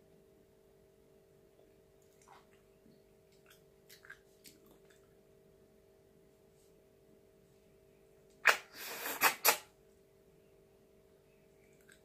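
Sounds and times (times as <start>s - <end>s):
faint steady hum: 0.0s - 12.0s
sharp eating smacks: 3.3s - 5.0s, 8.4s - 9.7s
short hiss: 8.4s - 9.7s.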